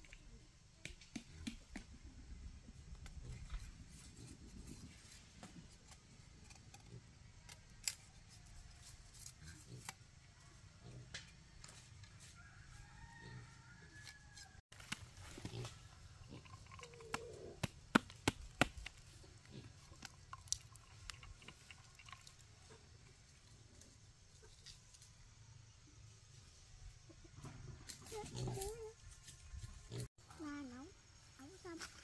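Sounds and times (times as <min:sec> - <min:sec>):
faint chicken calls: 0:11.6 - 0:14.6
sharp taps and knocks: 0:17.1 - 0:19.0.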